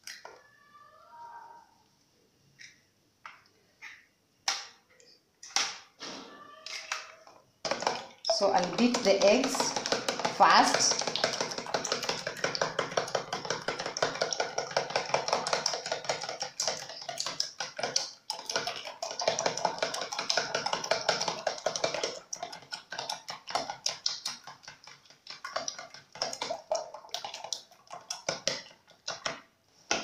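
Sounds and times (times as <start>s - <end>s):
utensil tapping plastic tub: 6.7s - 30.0s.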